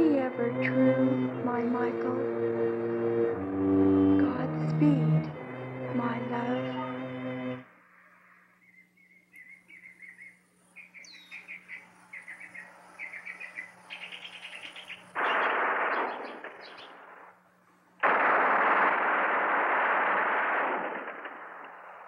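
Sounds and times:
small birds chirping: 8.2s - 17.1s
rapid gunfire: 15.2s - 17.4s, 18.0s - 22.0s.

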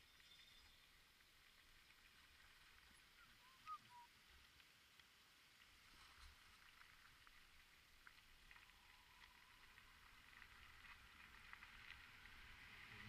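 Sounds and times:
bicycle tyres rolling on dirt: 0.0s - 13.0s
wind rumble on microphone: 8.1s - 13.0s.

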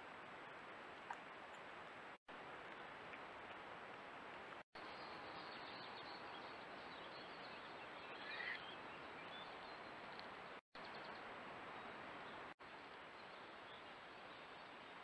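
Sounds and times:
faint bird chirps: 4.8s - 10.2s.

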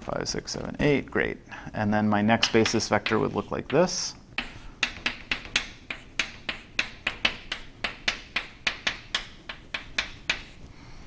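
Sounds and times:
chalk tapping on chalkboard: 2.4s - 10.7s.

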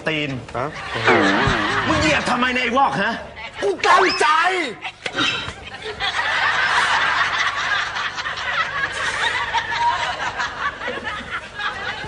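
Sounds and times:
audience laughing: 0.8s - 2.4s, 4.9s - 12.0s.

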